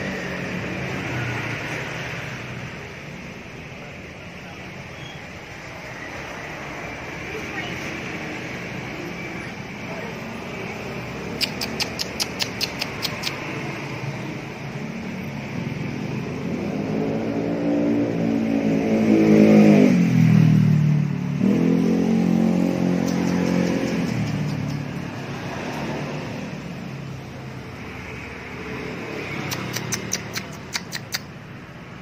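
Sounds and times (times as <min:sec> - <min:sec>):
vehicle engine passing by: 0:00.0 - 0:32.0
sharp clicks: 0:11.2 - 0:13.7, 0:23.0 - 0:25.1, 0:29.4 - 0:31.4.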